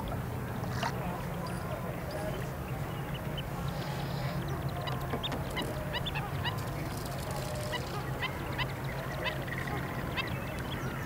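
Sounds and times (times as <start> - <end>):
waterbirds honking and chirping: 2.2 - 11.0.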